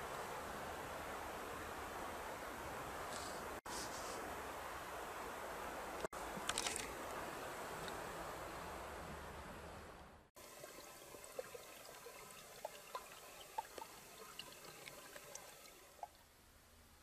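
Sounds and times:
steady rushing hiss: 0.0 - 17.0
water dripping and trickling: 10.4 - 16.3.

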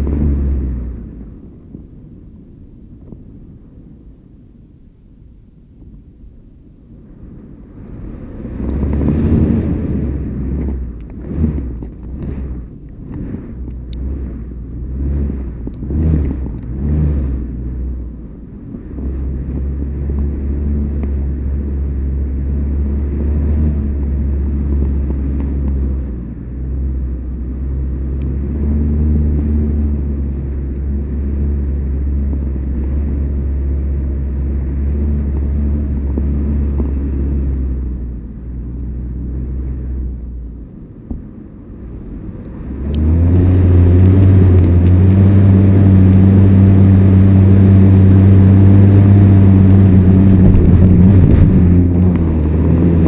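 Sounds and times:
wind buffeting camera: 5.1 - 28.6, 42.0 - 53.0.

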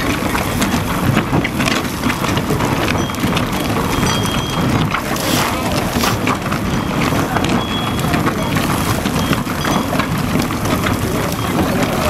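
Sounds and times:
cracks and clicks: 0.0 - 12.0
boring machine grinding rock: 2.3 - 12.0
high ringing tones: 3.0 - 8.6.

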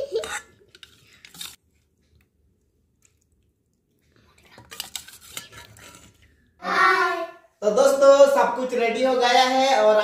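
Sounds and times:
curry squishing into steel bowl: 0.2 - 6.4.

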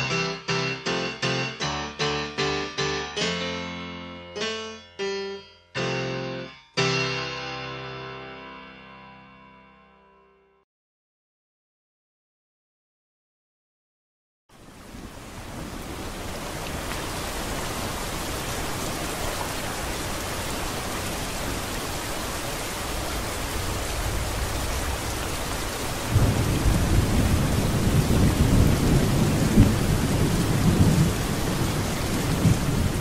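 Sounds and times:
rain hiss: 14.5 - 33.0
rolling thunder: 23.6 - 33.0.

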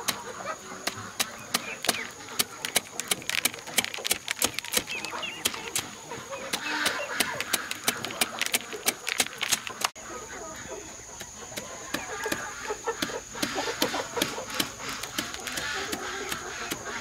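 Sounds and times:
knife scraping corn kernels: 0.0 - 10.0, 11.2 - 17.0
kernels dropping onto bamboo tray: 1.6 - 6.0, 6.7 - 9.9.

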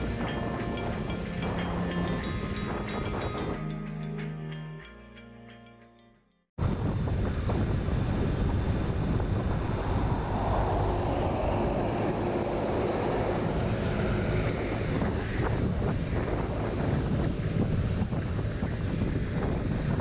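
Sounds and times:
road noise: 0.0 - 4.9, 6.6 - 20.0
wind buffeting microphone: 6.6 - 20.0.

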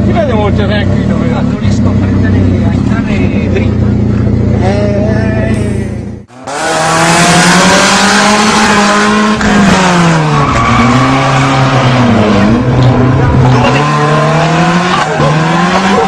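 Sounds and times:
car engine revving: 0.0 - 16.0
tyres squealing: 10.0 - 16.0.

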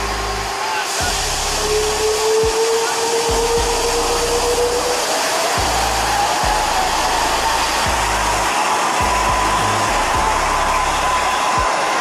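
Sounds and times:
jet engines roaring and whining: 0.0 - 12.0.

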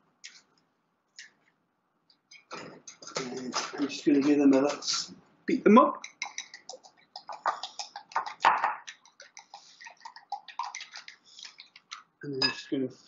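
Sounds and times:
fork clicking against glass bowl: 6.0 - 11.6.

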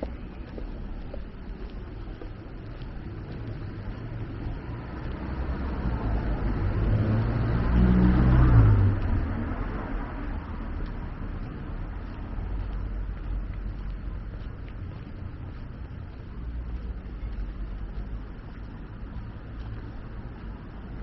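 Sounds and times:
vehicle driving past: 4.0 - 10.6.

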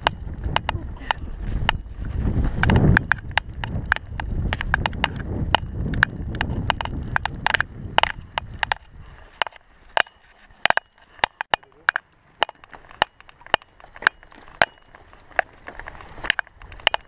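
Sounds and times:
wind on microphone: 0.0 - 9.4
bike rattling clicks: 0.0 - 17.0
bike tyres rumbling on gravel: 0.0 - 17.0.

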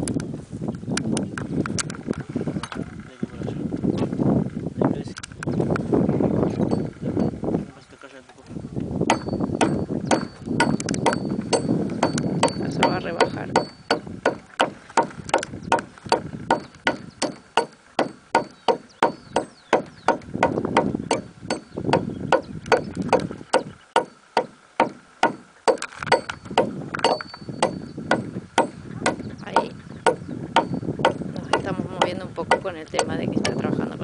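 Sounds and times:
hatchet chopping wood: 9.1 - 33.6.

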